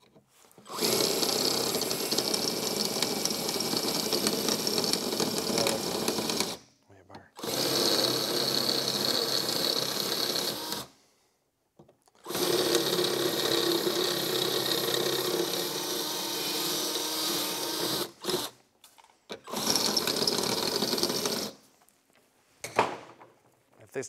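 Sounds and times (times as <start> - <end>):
electric drill cutting rivets: 0.5 - 6.6, 7.4 - 11.0, 12.1 - 21.6.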